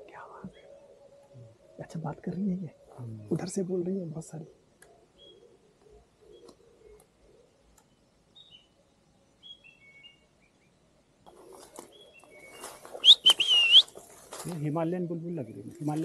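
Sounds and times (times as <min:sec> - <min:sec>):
songbirds chirping: 0:00.0 - 0:16.0
rustling noise: 0:11.3 - 0:14.9
loud whistled bird call: 0:12.4 - 0:14.0.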